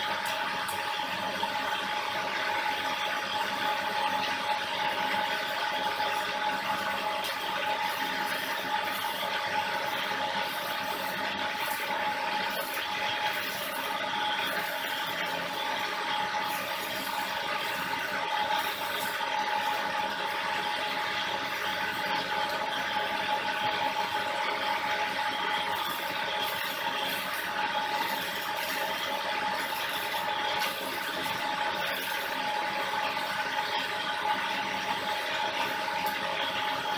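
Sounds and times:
welding arc crackling: 0.0s - 36.9s.

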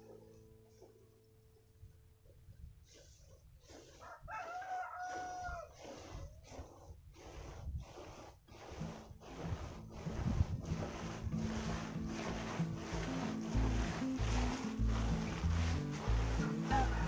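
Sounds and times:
rooster crowing: 4.0s - 5.7s, 16.6s - 17.0s.

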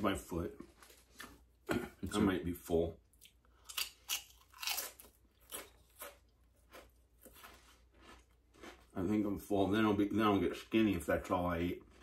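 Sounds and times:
person chewing crunchy food: 3.2s - 9.3s, 11.6s - 12.0s.

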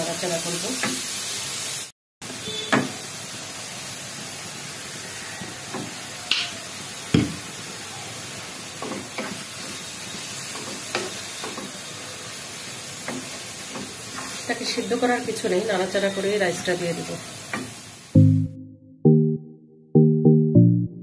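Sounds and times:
vegetables sizzling in wok: 0.0s - 18.2s
spatula knocking on wok: 7.1s - 7.5s.

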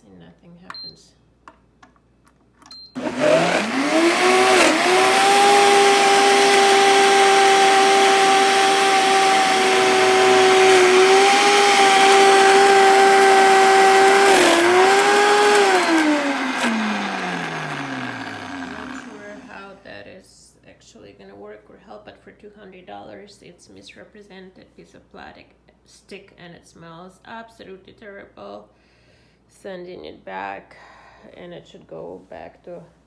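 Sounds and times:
blender motor whining: 3.0s - 19.8s.

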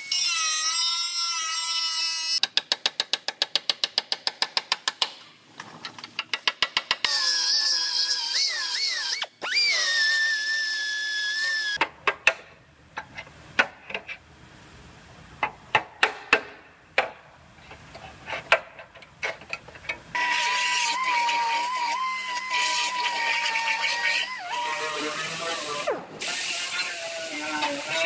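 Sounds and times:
sharp clicks and knocks: 2.4s - 7.1s, 11.8s - 14.2s, 15.4s - 20.1s.

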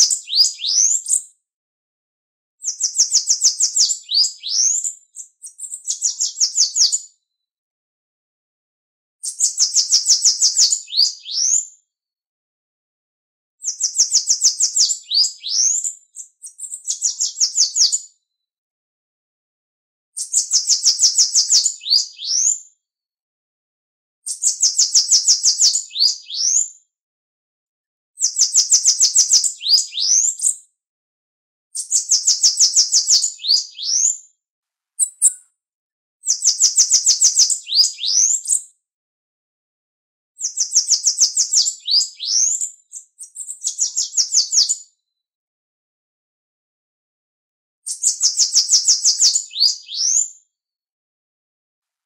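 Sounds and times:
bird singing high thin notes: 35.0s - 35.4s.

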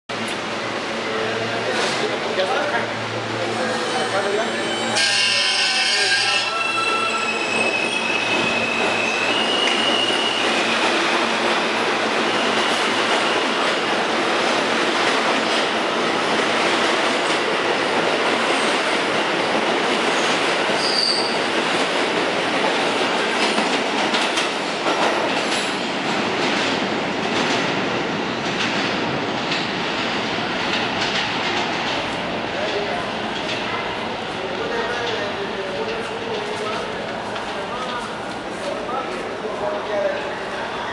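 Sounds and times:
subway train rumbling on track: 0.1s - 40.9s
wheel squeal: 4.6s - 10.7s, 20.8s - 21.4s.

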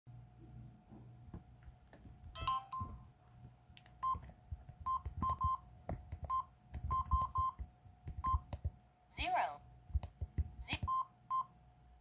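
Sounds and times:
keypad beeps: 4.0s - 5.6s, 6.2s - 8.5s, 10.7s - 11.5s.

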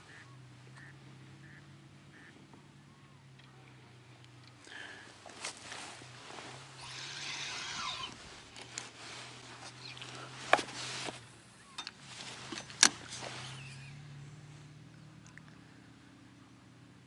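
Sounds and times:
brief rustle: 5.2s - 14.2s.

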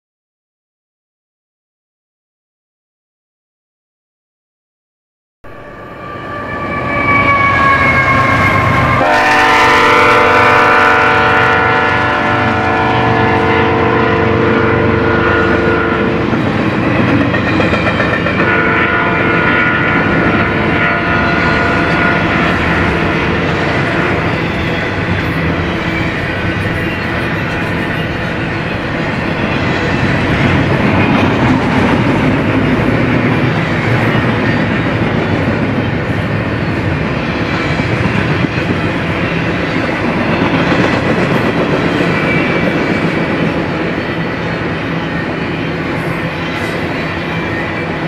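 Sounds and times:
train horn: 5.4s - 16.4s, 18.0s - 28.4s
train wheels rumbling on rails: 5.5s - 48.0s.

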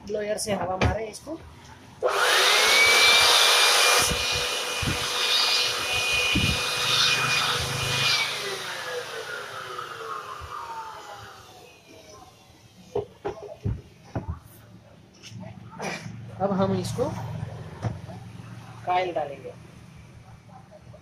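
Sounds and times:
electric air blower motor whine: 2.0s - 13.2s.

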